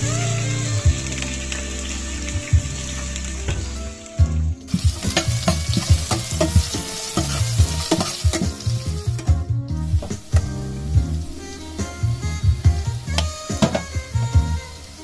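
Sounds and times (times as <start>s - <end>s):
onions sizzling in hot oil: 0.0s - 15.0s
utensil scraping a pot: 4.7s - 9.3s.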